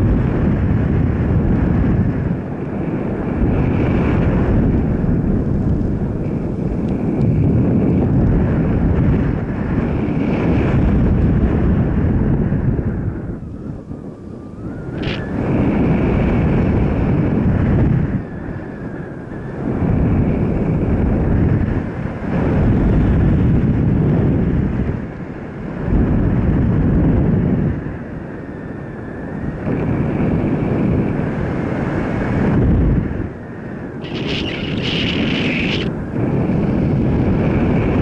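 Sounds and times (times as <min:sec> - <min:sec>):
wind rushing over microphone: 0:00.0 - 0:38.0
faint steady whine: 0:28.0 - 0:37.9.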